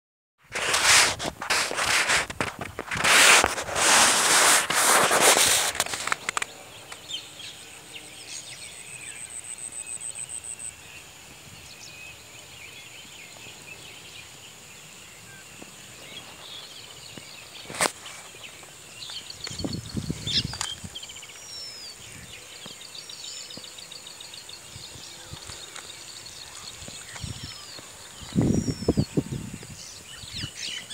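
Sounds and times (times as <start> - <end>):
rough rustle on microphone: 0.4 - 7.2, 15.6 - 22.9, 24.7 - 30.9
birds chirping and calling: 11.6 - 30.9.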